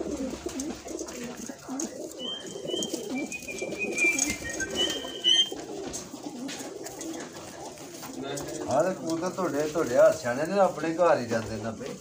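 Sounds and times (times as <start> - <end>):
pigeons cooing: 0.0 - 12.0
high whistling notes: 2.2 - 5.6.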